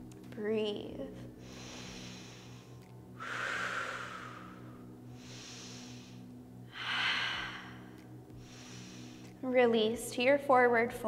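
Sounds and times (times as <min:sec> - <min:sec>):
woman breathing deeply: 0:01.3 - 0:09.4.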